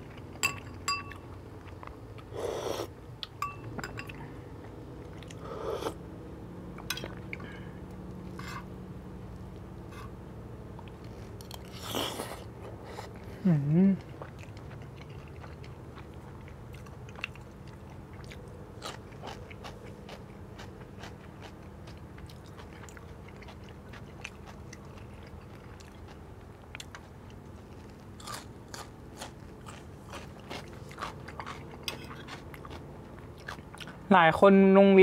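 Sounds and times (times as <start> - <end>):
steady low hum: 0.0 - 35.0
close chewing with crunches: 10.8 - 34.1.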